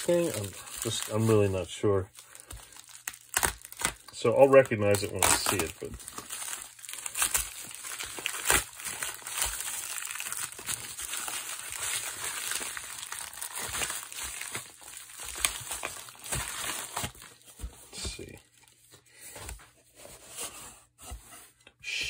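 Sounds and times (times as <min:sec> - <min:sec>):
plastic bag crinkling: 0:00.0 - 0:17.4.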